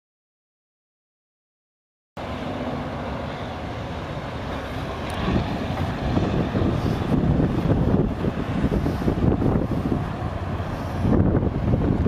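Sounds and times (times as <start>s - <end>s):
road traffic rumble: 2.2s - 12.0s
wind buffeting microphone: 3.2s - 12.0s.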